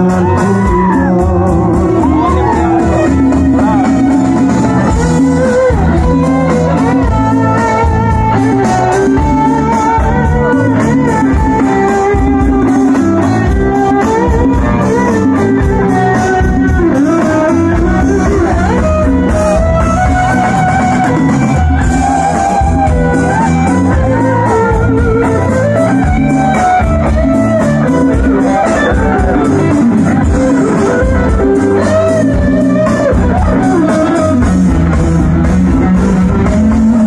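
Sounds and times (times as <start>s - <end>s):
bass line: 0.0s - 37.0s
drums: 0.0s - 37.0s
lead guitar melody: 0.0s - 37.0s
live rock band playing: 0.0s - 37.0s.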